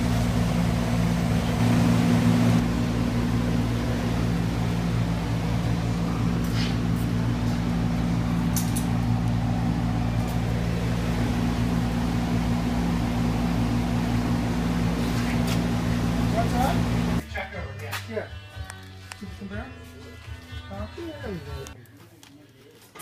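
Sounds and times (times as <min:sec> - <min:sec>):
low mechanical machine hum: 0:00.0 - 0:17.3.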